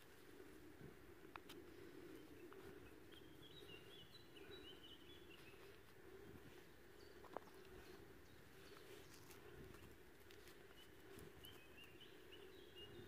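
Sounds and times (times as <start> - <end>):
faint high bird chirps: 2.1 - 9.9, 10.6 - 13.0.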